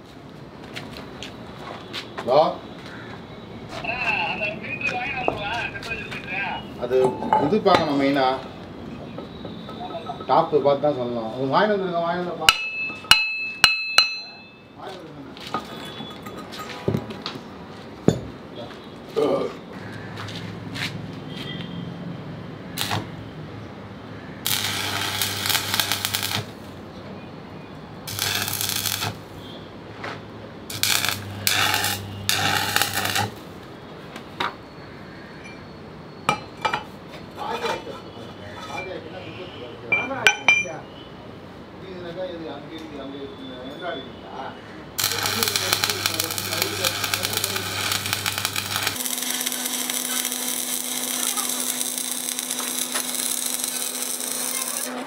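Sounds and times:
welding arc crackling: 0:22.8 - 0:23.1, 0:24.4 - 0:26.8, 0:28.0 - 0:29.4, 0:30.7 - 0:33.6, 0:45.0 - 0:55.0
low electrical hum: 0:28.1 - 0:29.3, 0:45.0 - 0:54.9.

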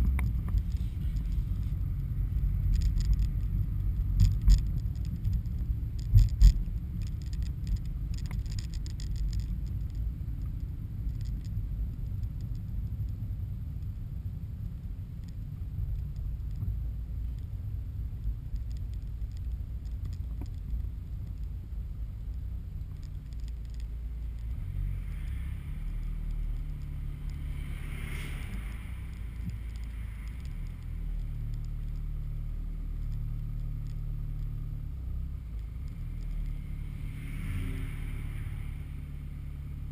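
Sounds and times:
car engine and tyre rumble: 0:00.0 - 0:39.9
rush of air: 0:24.7 - 0:31.1, 0:36.5 - 0:39.7.

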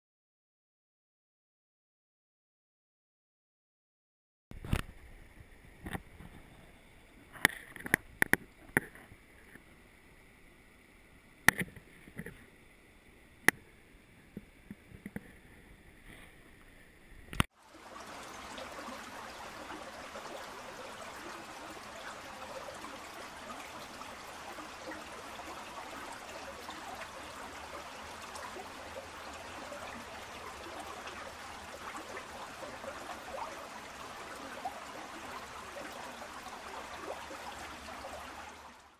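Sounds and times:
stream water rushing: 0:17.6 - 0:38.9.

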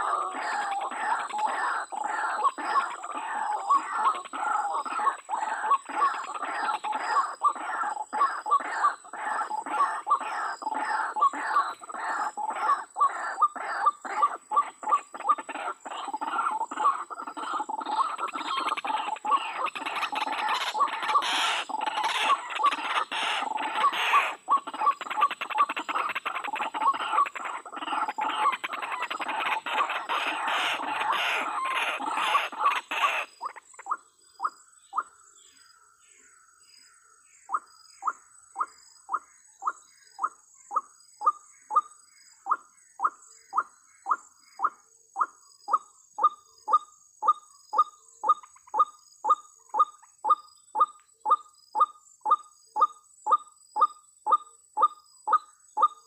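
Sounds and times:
waterhen calling rapidly: 0:00.0 - 0:34.0.

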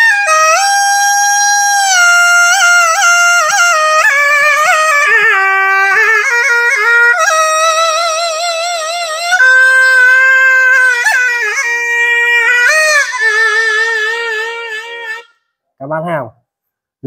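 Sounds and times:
reed horn melody: 0:01.8 - 0:15.4.

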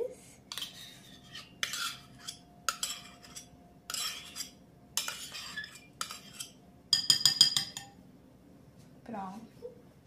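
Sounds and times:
metal spoon scraping: 0:00.5 - 0:08.0
spoon clinking on glass bowl: 0:02.7 - 0:08.0.

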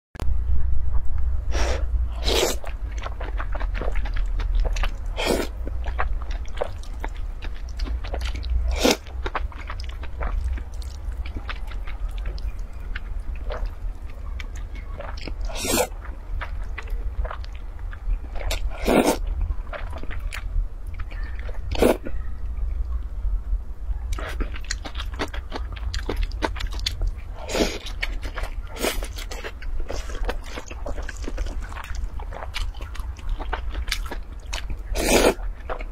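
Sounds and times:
steady low hum: 0:00.2 - 0:35.9
person slurping noodles: 0:01.5 - 0:02.7, 0:05.1 - 0:05.5, 0:08.7 - 0:09.0, 0:15.4 - 0:15.9, 0:18.7 - 0:19.2, 0:34.9 - 0:35.4
wet chewing: 0:02.2 - 0:22.2, 0:24.1 - 0:35.9.

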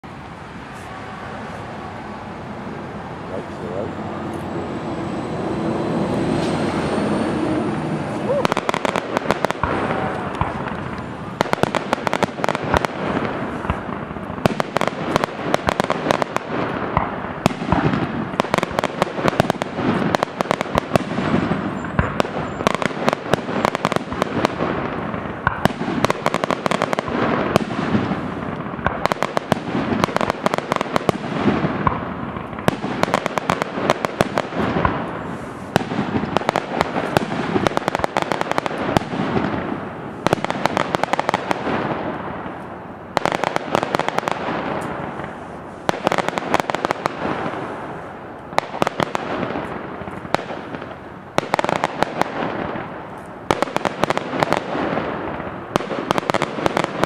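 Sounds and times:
fireworks crackling: 0:00.0 - 0:57.0
firework shells bursting: 0:08.0 - 0:57.0.

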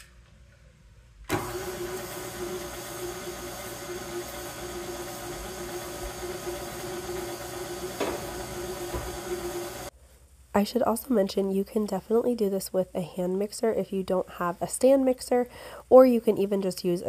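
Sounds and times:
stand mixer motor whining: 0:01.3 - 0:09.9
stand mixer switching on: 0:01.3 - 0:09.9.

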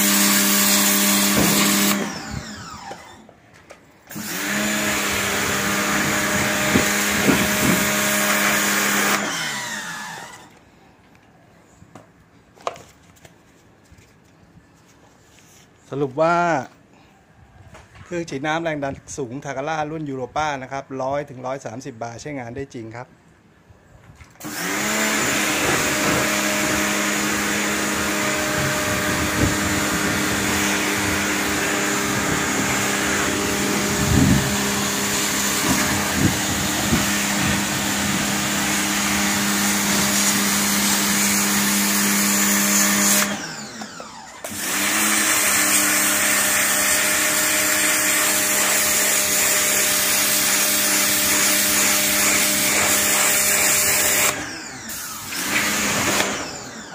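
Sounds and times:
water jet hissing on concrete: 0:00.0 - 0:02.0
pressure washer pump humming: 0:00.0 - 0:03.3, 0:04.1 - 0:10.6, 0:24.4 - 0:56.9.

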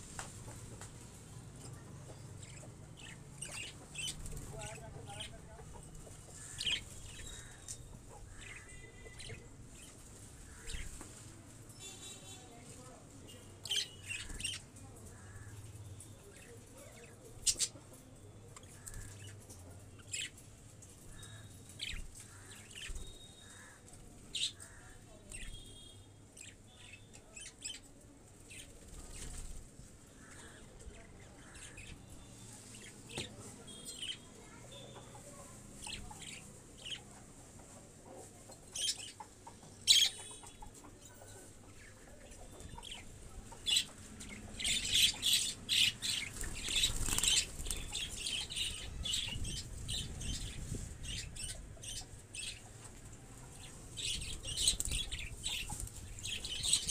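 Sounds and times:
chickens chirping and clucking: 0:30.8 - 0:56.9.

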